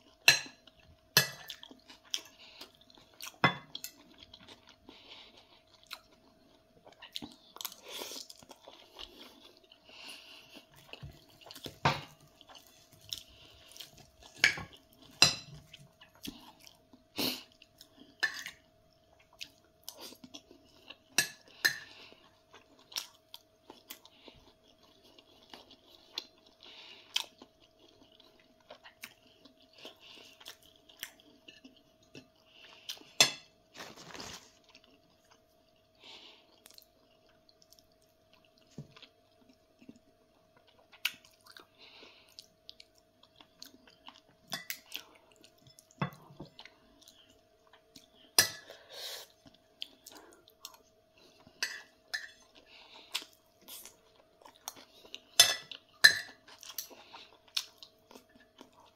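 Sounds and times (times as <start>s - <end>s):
person chewing: 0.0s - 58.9s.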